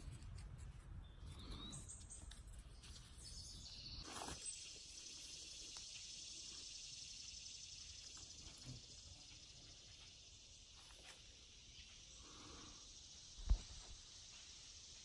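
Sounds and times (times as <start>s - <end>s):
insects droning: 3.2s - 15.0s.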